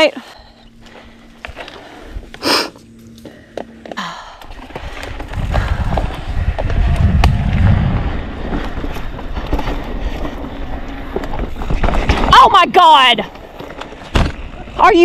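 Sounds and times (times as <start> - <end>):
bike clicks and rattles: 0.8 - 12.6, 13.2 - 14.9
tyres rolling over dirt: 4.5 - 14.9
wind buffeting microphone: 4.8 - 10.4.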